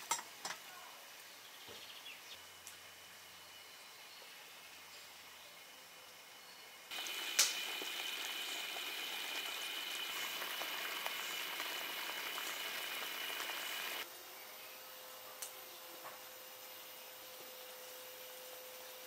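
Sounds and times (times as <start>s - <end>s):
liquid boiling and bubbling: 6.9s - 14.0s.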